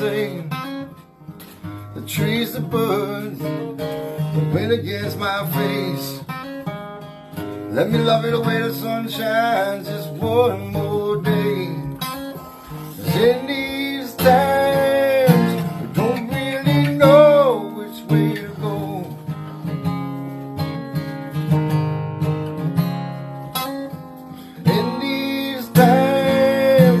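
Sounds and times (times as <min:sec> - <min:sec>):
strummed acoustic guitar: 0:00.0 - 0:27.0
man singing long notes: 0:12.8 - 0:19.2, 0:24.6 - 0:27.0.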